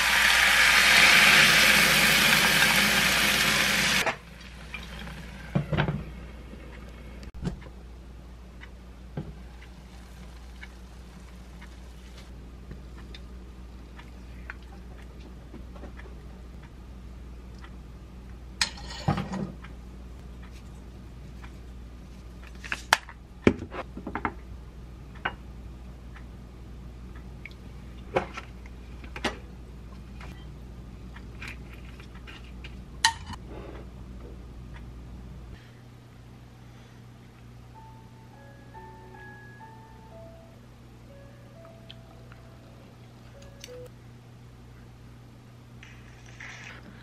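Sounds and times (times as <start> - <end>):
steady low hum: 4.0 - 47.0
utensils clinking on dishes: 18.6 - 19.5.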